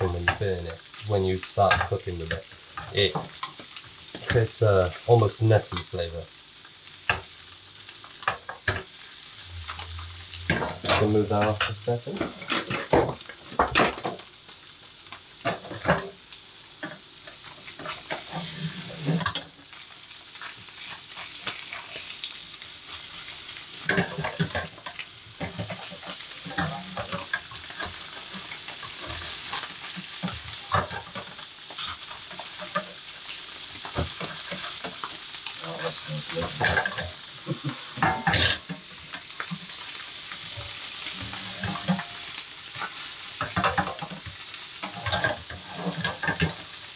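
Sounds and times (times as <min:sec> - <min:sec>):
fish sizzling in butter: 0:00.0 - 0:46.9
spatula tapping and scraping pan: 0:23.8 - 0:35.3, 0:40.4 - 0:46.8.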